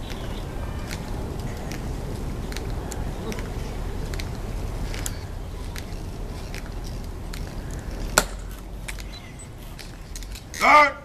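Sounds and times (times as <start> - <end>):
wind rumble on microphone: 0.0 - 10.6
metal heels clicking on stone: 2.5 - 10.6.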